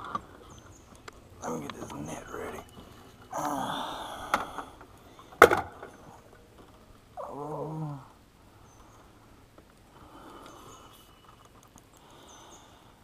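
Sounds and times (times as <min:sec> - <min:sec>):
man grunting: 0:07.2 - 0:08.2.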